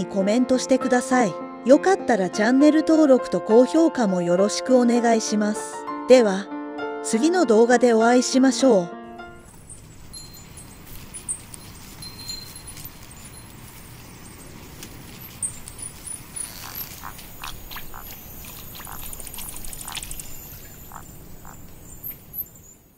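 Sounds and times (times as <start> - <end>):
frogs croaking: 9.4 - 22.9
high chirps: 9.4 - 22.9.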